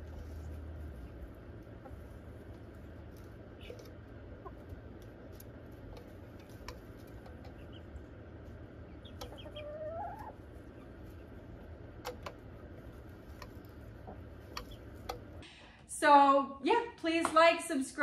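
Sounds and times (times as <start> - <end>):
beaks tapping plastic feeder: 1.6 - 15.4
hen calling: 8.8 - 11.3.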